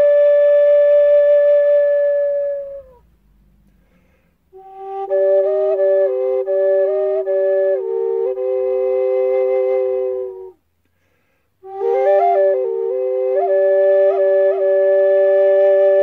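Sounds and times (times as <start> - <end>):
drone flute playing: 0.0 - 3.1, 4.5 - 10.6, 11.6 - 16.0
breath: 3.6 - 4.5, 10.8 - 11.6.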